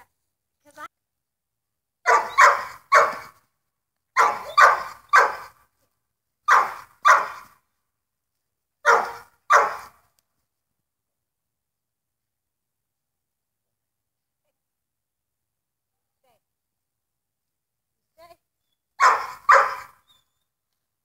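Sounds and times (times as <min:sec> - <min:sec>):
dog barking: 0:02.0 - 0:03.4, 0:04.2 - 0:05.6, 0:06.5 - 0:07.5, 0:08.8 - 0:10.0, 0:19.0 - 0:20.1.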